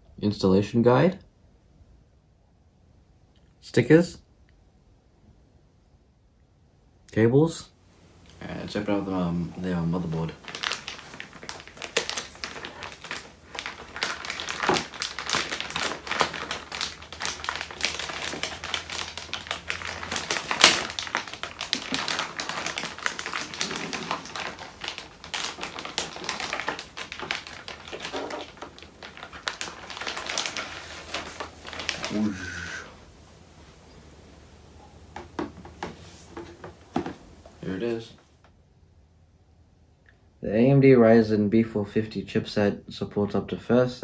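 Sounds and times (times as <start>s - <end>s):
plastic bag crinkling: 8.2s - 38.0s.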